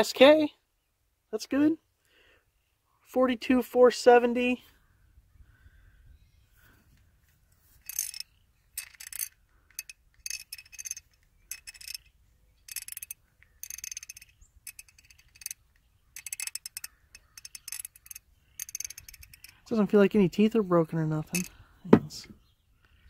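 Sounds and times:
hand ratchet clicking: 7.8 - 8.2, 8.8 - 12.1, 12.7 - 19.6.

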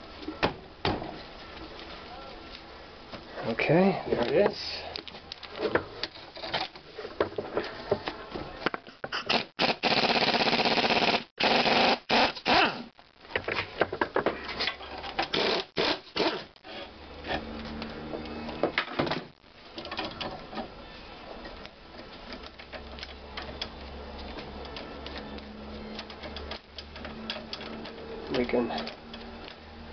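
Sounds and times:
air ratchet running: 9.3 - 12.6, 15.3 - 16.4.

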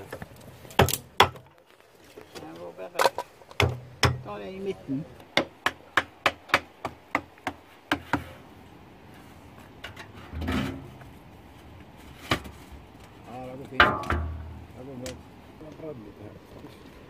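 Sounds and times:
hatchet knocking wood: 3.5 - 4.3, 5.3 - 8.3.

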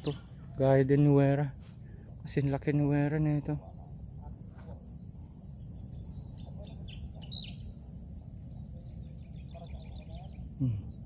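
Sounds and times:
bird chirps: 0.0 - 0.8, 5.9 - 7.8, 8.8 - 11.0
crickets and insects droning: 0.0 - 11.0.

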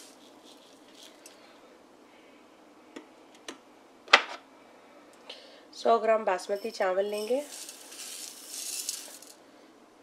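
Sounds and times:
grains ticking in steel pot: 7.2 - 9.3.

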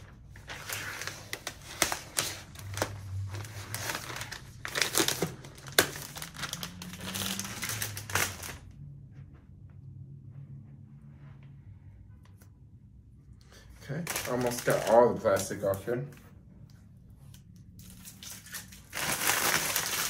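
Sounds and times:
plastic film peeling and crinkling: 0.0 - 8.8, 14.0 - 16.0, 17.2 - 20.0.

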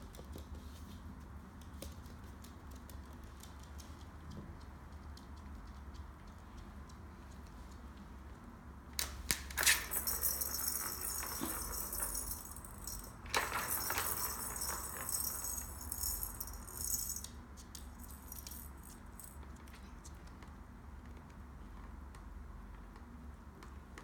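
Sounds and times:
plastic ball rattling around track: 9.5 - 19.0.

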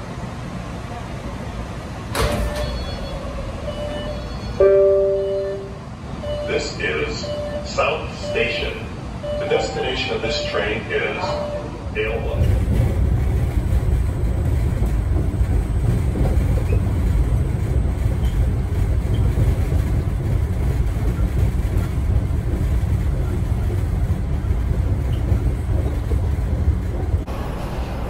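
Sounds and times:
subway train rumbling: 0.0 - 28.0.

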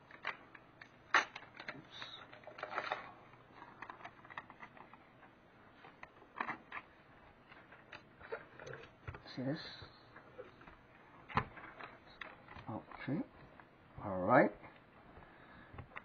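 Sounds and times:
aluminium foil crinkling: 0.0 - 9.0.

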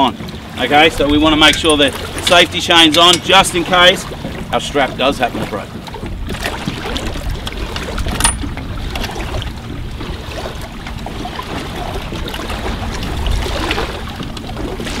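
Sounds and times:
wind and water rumble: 0.0 - 15.0
metal chain clinking: 1.4 - 1.9, 8.2 - 8.5.

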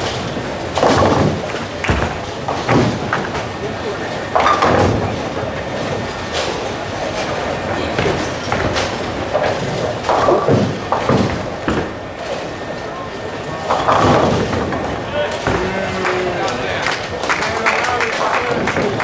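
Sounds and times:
bowling balls rolling: 0.0 - 17.4, 18.0 - 19.0
loud knocks: 0.8 - 3.4.

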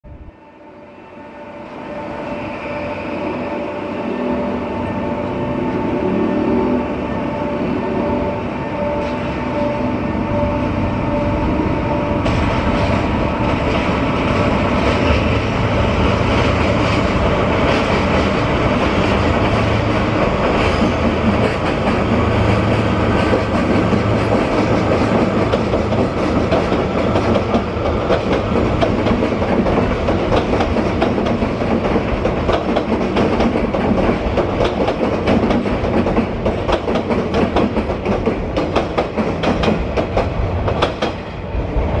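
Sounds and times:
diesel locomotive engine droning: 0.1 - 42.0
train wheels clicking over rail joints: 16.2 - 41.3.

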